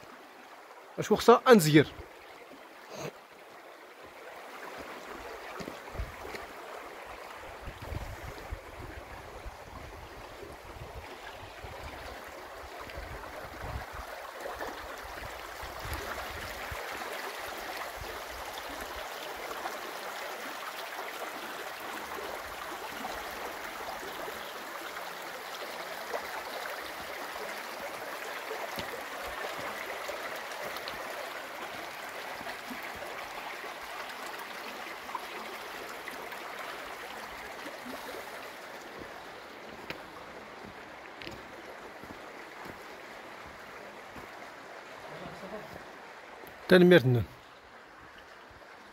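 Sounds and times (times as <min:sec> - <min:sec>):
stream running over stones: 0:00.0 - 0:48.9
wind rumble on microphone: 0:05.9 - 0:06.2, 0:07.6 - 0:12.0.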